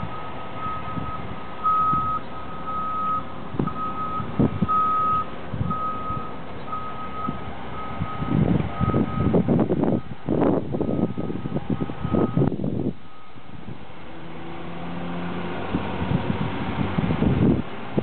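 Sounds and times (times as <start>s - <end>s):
reversing alarm beeping: 0.1s - 10.2s, 10.8s - 12.5s, 13.1s - 13.4s.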